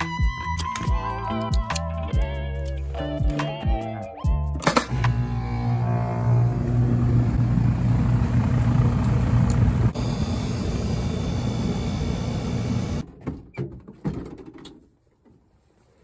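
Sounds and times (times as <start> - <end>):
air conditioner running: 4.9 - 13.0.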